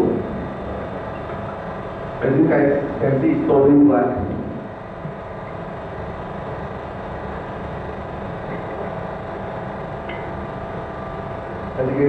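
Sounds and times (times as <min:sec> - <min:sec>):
electric pump motor humming: 0:00.0 - 0:12.0.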